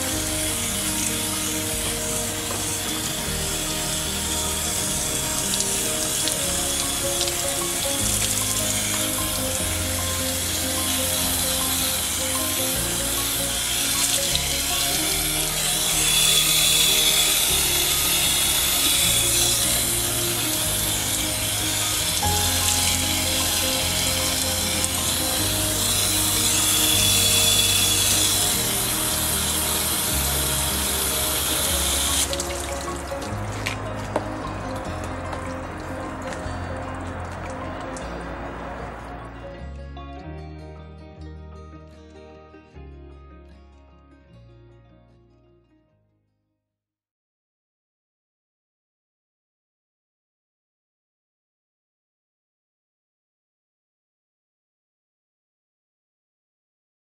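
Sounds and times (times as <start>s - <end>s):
water spraying onto leaves: 0.0s - 36.4s
background music: 0.0s - 45.9s.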